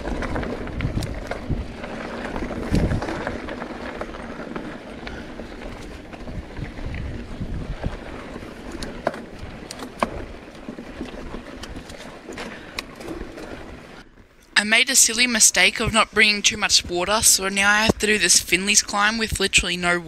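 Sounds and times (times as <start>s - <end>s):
wind noise on camera: 0.0s - 13.8s
bike clicks and rattles: 0.0s - 14.6s
bike tyres on dirt trail: 0.0s - 19.2s.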